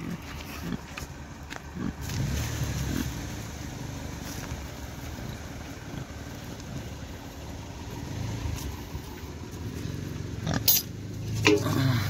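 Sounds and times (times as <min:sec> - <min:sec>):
metal bowl knocks and clinks: 0:11.4 - 0:11.7.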